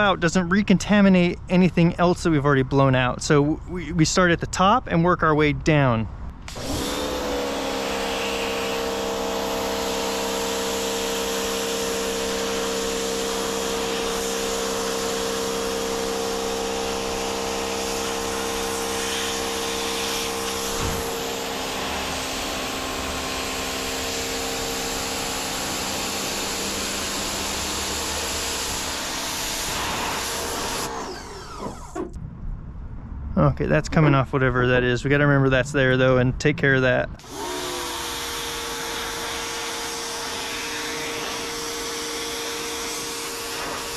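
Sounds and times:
pressure washer pump motor hum: 0:06.5 - 0:32.2, 0:37.2 - 0:43.9
water jet hissing: 0:07.8 - 0:31.0.

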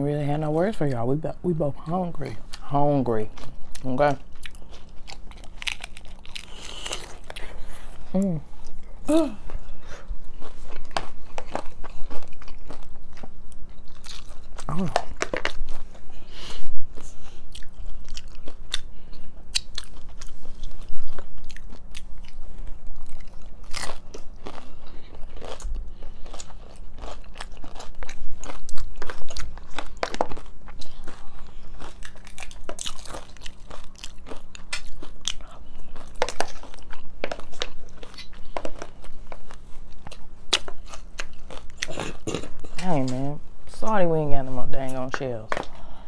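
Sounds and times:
wet chewing: 0:02.3 - 0:16.2, 0:16.9 - 0:43.3
crunchy bites: 0:04.4 - 0:07.5, 0:23.0 - 0:39.6.

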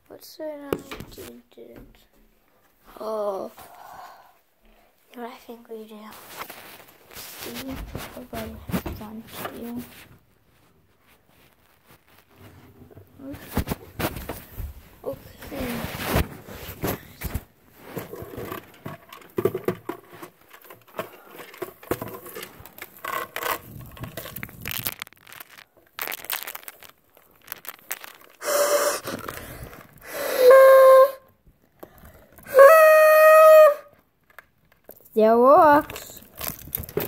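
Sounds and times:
rustling of paper and tinsel: 0:05.8 - 0:18.6, 0:20.0 - 0:30.8, 0:35.0 - 0:37.0.

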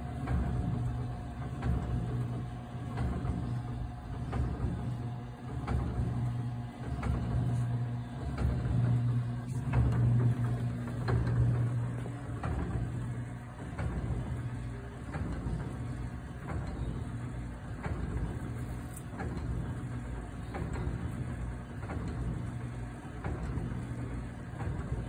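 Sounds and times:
low machine hum: 0:00.0 - 0:25.0.

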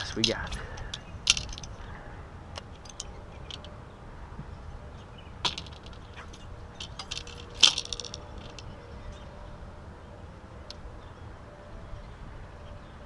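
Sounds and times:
fishing gear clicks and knocks: 0:00.0 - 0:01.8, 0:02.6 - 0:03.8, 0:05.5 - 0:08.7
light metallic rattle: 0:00.0 - 0:01.8, 0:02.6 - 0:03.8, 0:05.4 - 0:08.8.

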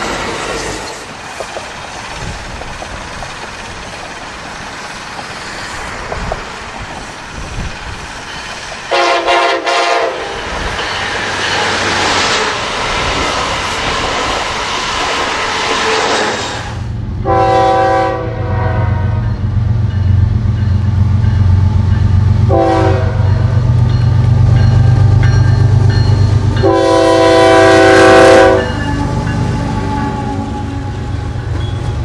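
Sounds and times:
passing train rushing: 0:00.0 - 0:32.0
train horn blasts: 0:08.9 - 0:10.5, 0:17.2 - 0:19.4, 0:22.4 - 0:23.5, 0:26.6 - 0:31.4
locomotive engine drone: 0:10.1 - 0:32.0.

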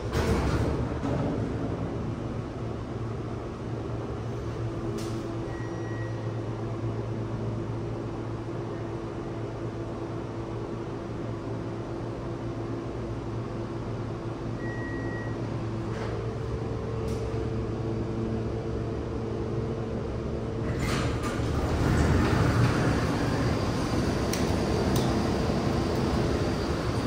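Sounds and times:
elevator hum: 0:00.0 - 0:27.0
short beep: 0:05.5 - 0:06.3, 0:14.6 - 0:15.4
elevator door rattling: 0:20.6 - 0:27.0.

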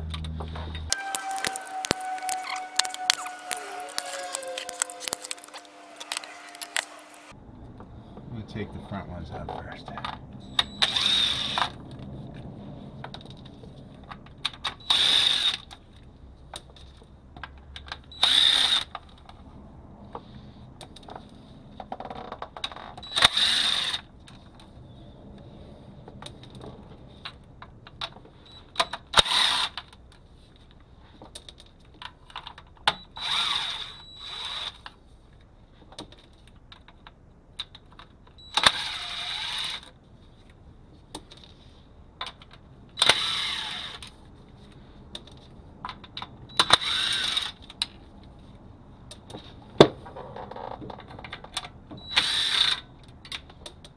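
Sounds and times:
impact wrench running: 0:00.9 - 0:07.3.

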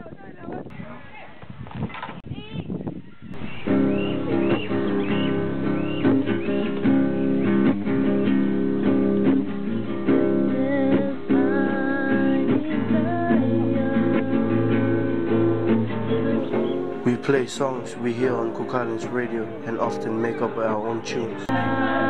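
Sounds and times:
acoustic guitar strumming chords: 0:03.4 - 0:22.0
melody with pitch bends: 0:16.4 - 0:22.0.

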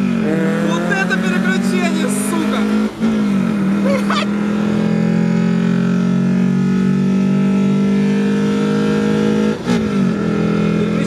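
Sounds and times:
car engine at full throttle: 0:00.0 - 0:11.0.

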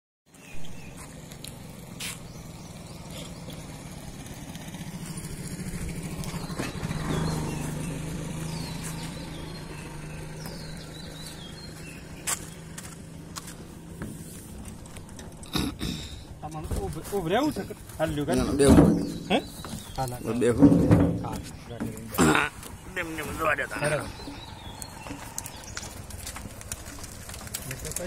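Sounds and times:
motor vehicle engine hum: 0:00.3 - 0:28.0
sharp knocks: 0:20.5 - 0:22.0
cart rolling: 0:22.7 - 0:28.0.

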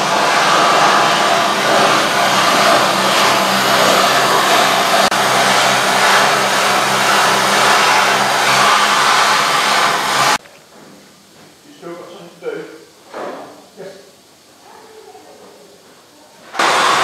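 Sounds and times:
power grinder on metal: 0:00.0 - 0:10.4.

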